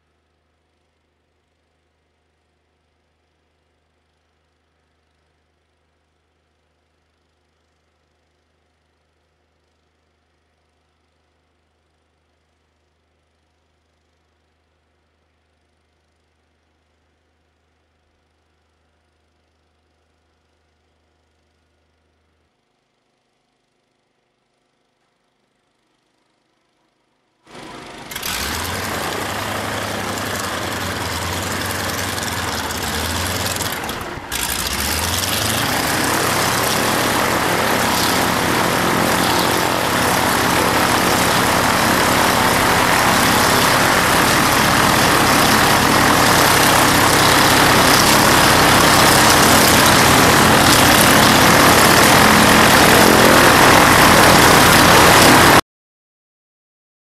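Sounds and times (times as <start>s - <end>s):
radial engine and propeller running: 27.5s - 55.6s.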